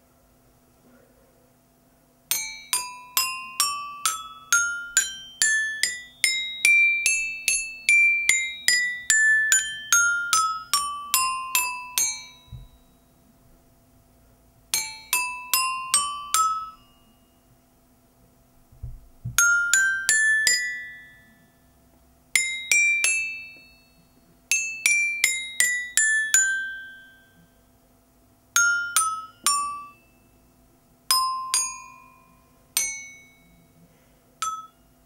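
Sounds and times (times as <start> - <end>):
toy xylophone notes: 2.3 - 13.0, 14.7 - 17.5, 19.3 - 21.6, 22.3 - 27.5, 28.6 - 30.4, 31.1 - 33.8, 34.4 - 35.0.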